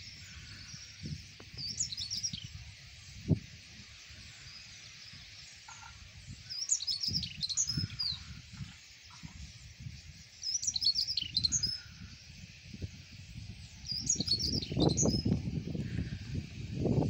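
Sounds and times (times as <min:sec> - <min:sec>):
starlings chattering: 0:00.0 - 0:17.0
bird chirps and whistles: 0:10.4 - 0:11.8, 0:13.8 - 0:15.3.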